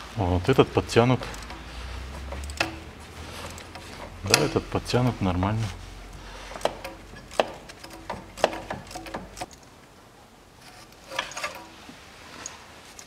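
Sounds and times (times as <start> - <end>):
hand tool clicking on metal: 1.1 - 4.8, 6.5 - 9.7, 10.8 - 11.8.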